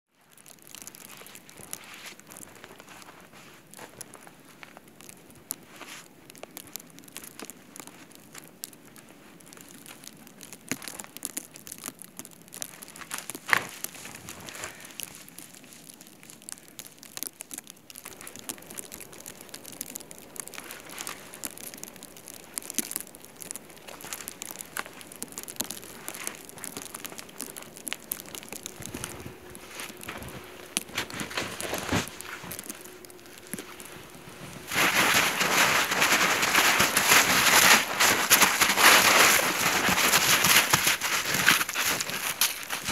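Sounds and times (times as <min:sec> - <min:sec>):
footsteps crunching through snow: 0:00.2 - 0:06.1, 0:12.7 - 0:16.3, 0:18.0 - 0:42.9
hands scooping snow: 0:00.8 - 0:04.7, 0:12.7 - 0:16.3, 0:18.1 - 0:42.9.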